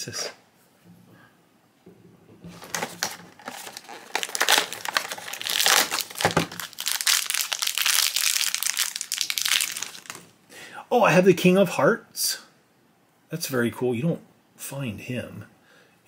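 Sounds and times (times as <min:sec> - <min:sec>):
toy packaging crinkling: 0:02.5 - 0:10.3.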